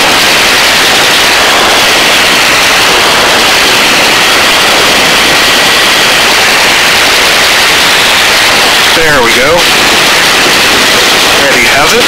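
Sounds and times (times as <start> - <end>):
faint steady whine: 0.0 - 12.0
helicopter hovering: 0.0 - 12.0.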